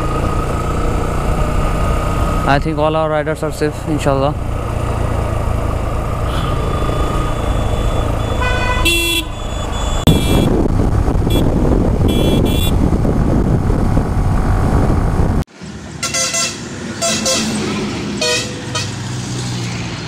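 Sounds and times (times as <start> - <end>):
motorcycle road and wind rumble: 0.0 - 20.0
vehicle horn blaring: 7.3 - 10.6, 11.3 - 12.8, 16.0 - 17.6, 18.2 - 19.0
short horn toots: 8.3 - 9.4, 12.1 - 12.8.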